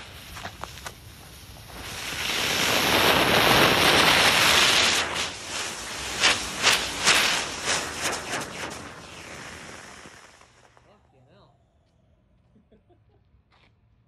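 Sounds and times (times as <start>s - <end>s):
rocket motor rushing hiss: 1.2s - 10.8s
rocket motor sputtering pops: 3.1s - 10.9s.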